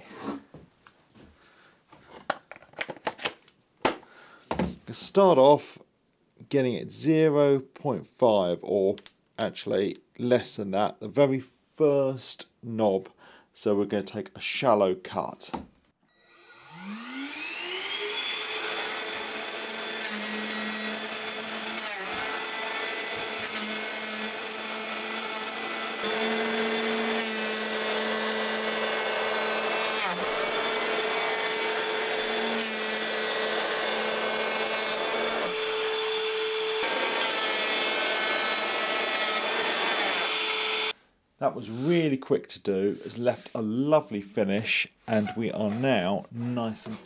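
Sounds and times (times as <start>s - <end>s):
electric planer whining: 16.2s - 41.0s.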